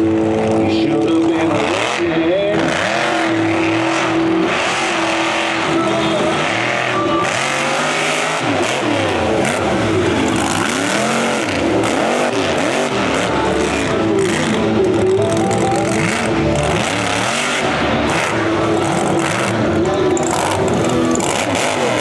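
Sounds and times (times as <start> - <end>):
truck engine revving: 0.0 - 22.0.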